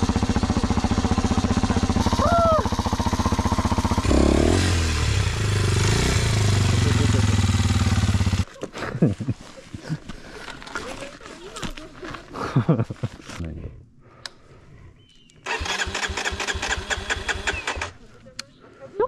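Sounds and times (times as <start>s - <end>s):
motorcycle engine running: 0.0s - 8.5s, 15.5s - 18.0s.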